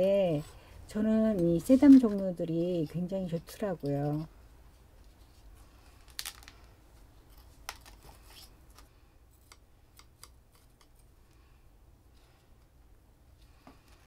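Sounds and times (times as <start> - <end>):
low steady hum: 0.0 - 14.0
tweezers clicking and scratching: 1.3 - 4.3.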